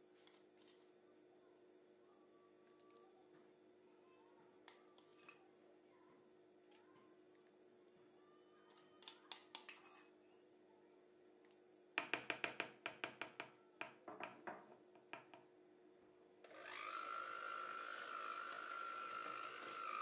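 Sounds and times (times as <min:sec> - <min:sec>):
electric hand mixer whining: 0:16.5 - 0:20.0.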